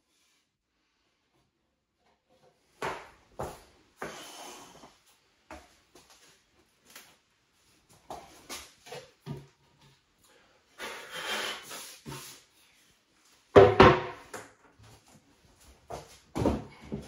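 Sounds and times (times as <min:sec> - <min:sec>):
heavy thump of cabinet: 0:13.6 - 0:14.2.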